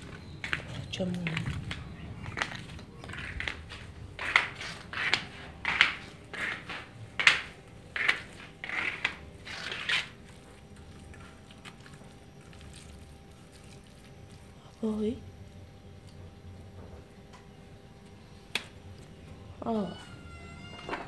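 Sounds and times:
footsteps crunching on gritty floor: 0:00.0 - 0:10.8.

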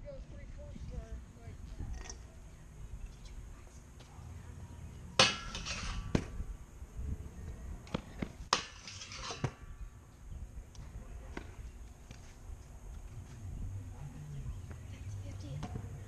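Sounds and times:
scooter grinding on metal rail: 0:05.2 - 0:06.2, 0:08.5 - 0:09.6.

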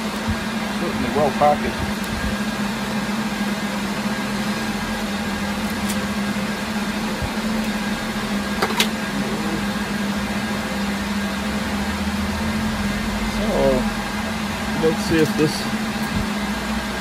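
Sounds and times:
server cooling fans humming: 0:00.0 - 0:17.0.

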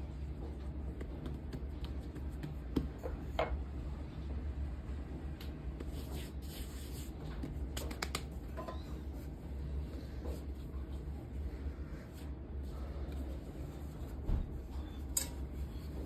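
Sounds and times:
steady low hum: 0:00.0 - 0:16.0
hands pressing dough: 0:00.1 - 0:03.6.

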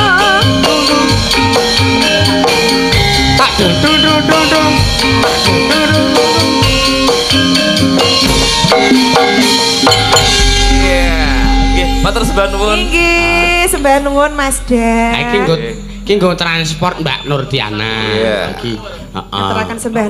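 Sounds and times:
hand drum pattern: 0:00.0 - 0:19.8
metallophone notes ringing: 0:01.9 - 0:17.5.

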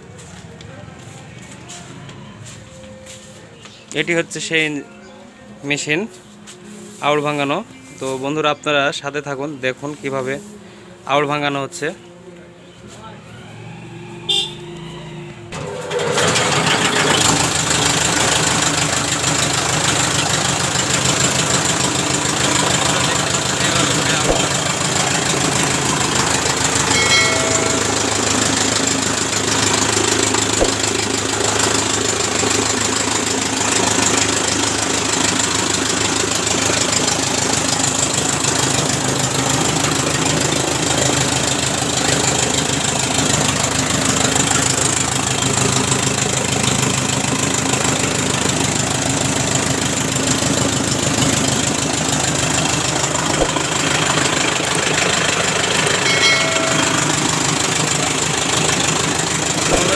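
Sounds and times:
straw chopper running: 0:15.6 - 0:59.9.

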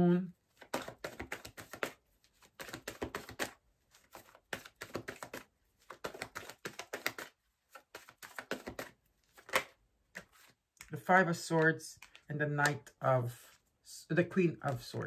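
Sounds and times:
cards clicking and tapping: 0:00.5 - 0:11.0, 0:11.6 - 0:12.9.

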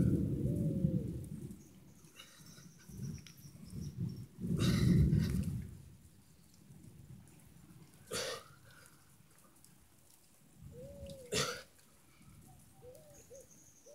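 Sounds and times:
dove cooing: 0:00.0 - 0:01.3, 0:10.6 - 0:11.6, 0:12.4 - 0:13.9.

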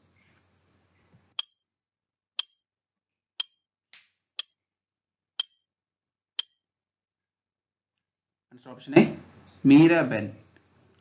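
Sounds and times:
timer ticks: 0:01.4 - 0:01.6, 0:02.4 - 0:02.6, 0:03.4 - 0:03.6, 0:04.4 - 0:04.6, 0:05.4 - 0:05.6, 0:06.4 - 0:06.6.

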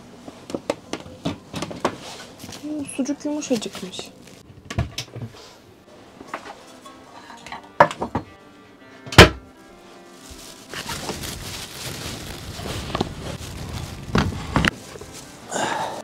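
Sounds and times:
outdoor rustling: 0:00.2 - 0:16.0
background music: 0:05.8 - 0:16.0.

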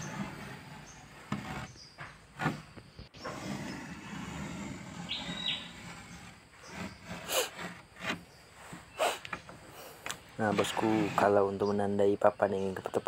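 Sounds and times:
file tip scratching wood: 0:00.0 - 0:01.8, 0:03.2 - 0:09.5, 0:10.4 - 0:11.5.

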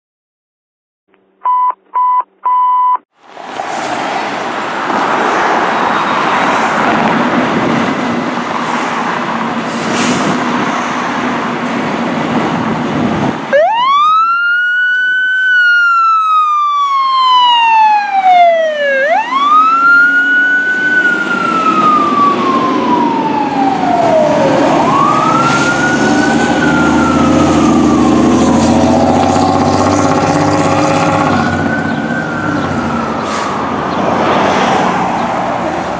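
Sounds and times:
short beeps: 0:01.4 - 0:03.0
fire truck diesel engine: 0:09.3 - 0:35.9.

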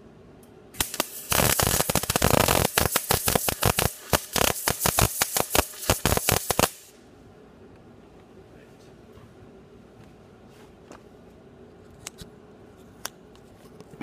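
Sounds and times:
welding arc crackling: 0:00.8 - 0:07.0.

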